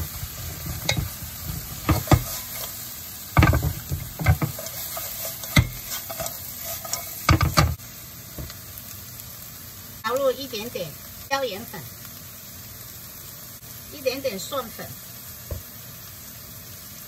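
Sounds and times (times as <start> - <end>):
spatula knocking and scraping wok: 0.0 - 8.6
light sizzle: 0.0 - 17.0.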